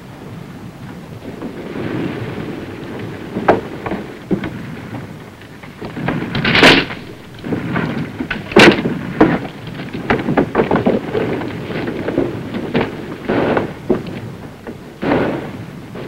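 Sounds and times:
cracks and bangs: 1.2 - 16.0
crash: 5.8 - 14.1, 15.0 - 16.0.

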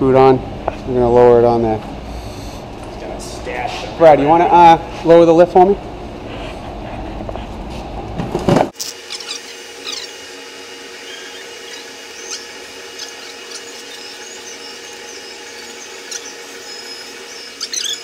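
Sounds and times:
vehicle lift humming: 0.0 - 18.0
high squeaks and chirps: 8.8 - 10.2, 11.0 - 18.0.

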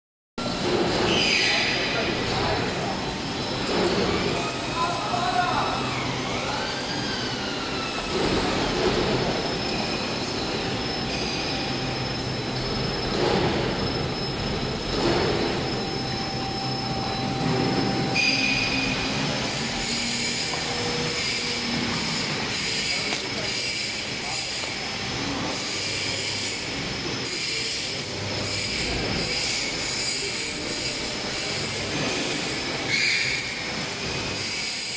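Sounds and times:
gliding squeal: 0.4 - 34.9
loud low machine noise: 0.4 - 34.9
machine mechanical drone: 0.4 - 34.9
high thin whines: 2.7 - 23.7.

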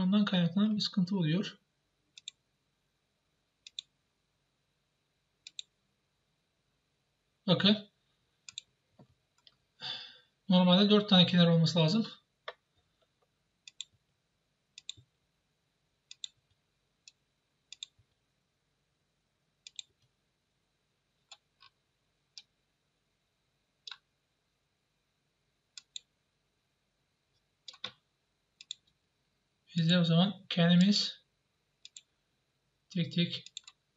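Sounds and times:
computer mouse buttons clicking: 3.6 - 3.9, 5.5 - 5.7, 8.5 - 8.7, 13.7 - 14.0, 14.8 - 15.1, 16.1 - 16.4, 17.1 - 18.0, 19.6 - 20.1, 25.8 - 26.1, 27.7 - 28.0, 28.6 - 29.0, 31.8 - 32.1, 33.4 - 33.8.

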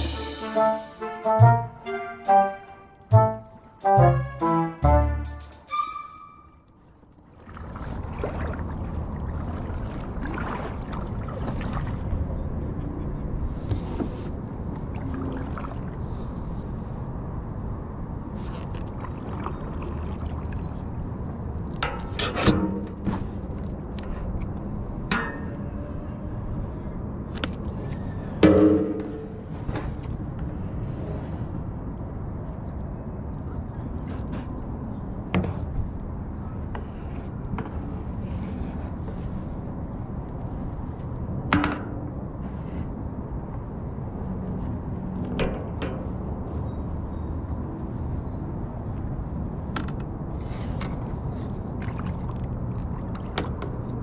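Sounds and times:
wind: 0.0 - 54.0
water washing: 7.3 - 12.4, 18.6 - 20.9.

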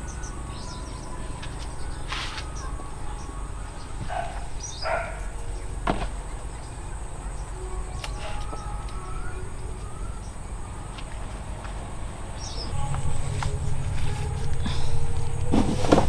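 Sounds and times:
small bird chirping: 0.0 - 11.5
bananas rustling: 0.0 - 16.0
low outdoor hum: 0.0 - 16.0.

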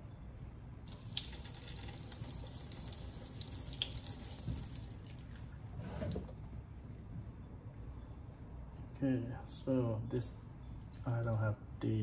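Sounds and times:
faucet water hissing into sink: 0.9 - 5.1.

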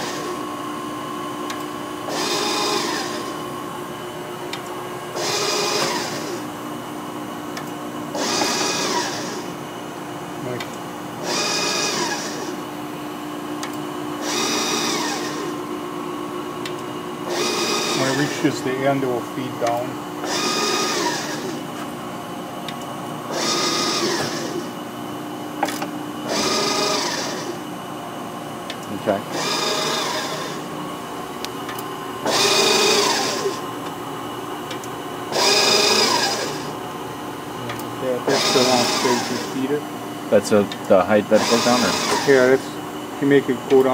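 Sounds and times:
grinder humming: 0.0 - 9.8, 10.4 - 43.9
hydraulic hissing surge: 2.1 - 3.3, 5.1 - 6.4, 8.2 - 9.5, 11.2 - 12.6, 14.2 - 15.5, 20.2 - 21.6, 23.3 - 24.7, 26.2 - 27.6, 29.3 - 30.7, 32.2 - 33.7, 35.3 - 36.7, 38.3 - 39.6, 41.4 - 42.6.

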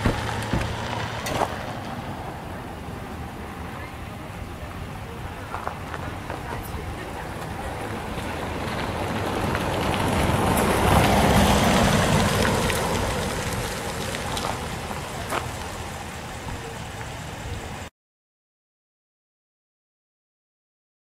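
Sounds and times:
vehicle driving past: 5.3 - 17.8.

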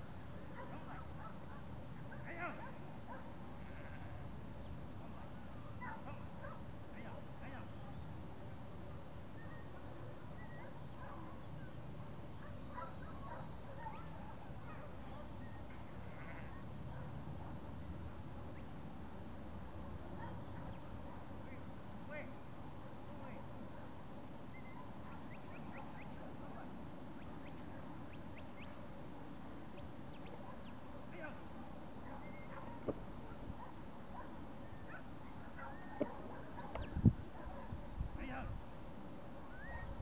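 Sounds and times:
steady low background noise: 0.0 - 40.0
distant dog barks: 0.5 - 3.4, 5.1 - 6.7, 9.6 - 17.7, 20.0 - 21.7, 23.0 - 24.0, 24.6 - 26.8, 30.2 - 31.3, 32.0 - 37.9
wind rumbling on microphone: 36.0 - 38.8, 39.6 - 40.0.

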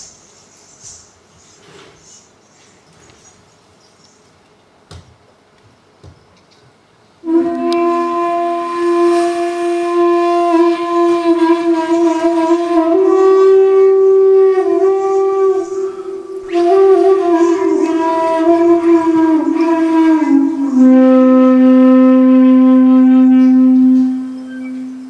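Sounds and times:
wind instrument long held notes: 7.2 - 25.0.

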